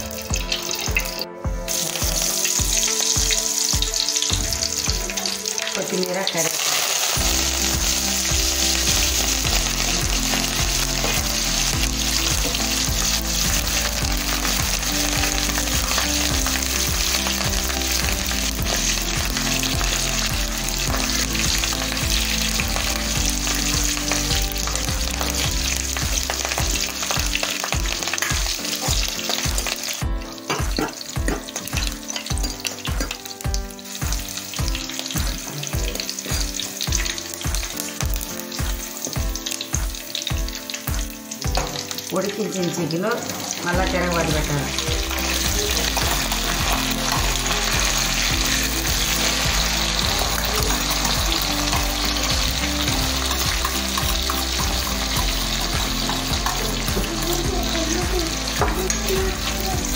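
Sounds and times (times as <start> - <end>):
leaves sizzling in hot oil: 0.0 - 59.9.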